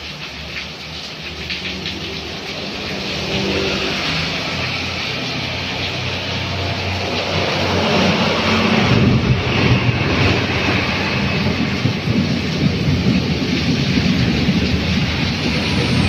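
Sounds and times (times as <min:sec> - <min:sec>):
rain hissing: 0:00.0 - 0:16.0
tyres swishing through water: 0:00.0 - 0:16.0
truck engine rumbling: 0:05.2 - 0:16.0.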